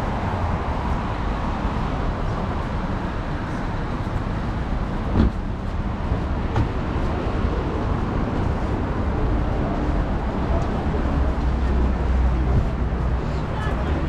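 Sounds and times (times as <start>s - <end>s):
road traffic noise: 0.0s - 14.0s
short thump: 5.1s - 5.4s.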